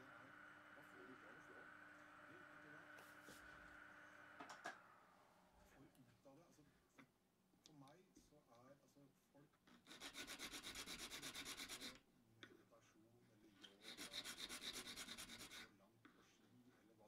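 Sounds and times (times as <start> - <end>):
needle file rasping: 9.8 - 12.0, 13.6 - 15.7.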